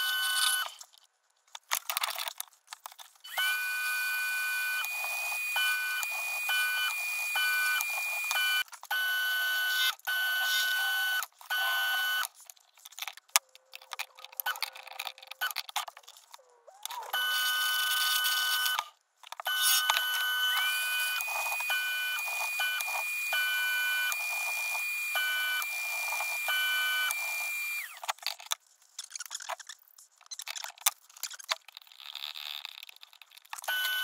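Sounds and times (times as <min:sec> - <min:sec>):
pulsing electronic beeps: 0:03.3 - 0:09.5
high held electronic tone: 0:03.3 - 0:09.6, 0:19.5 - 0:28.0.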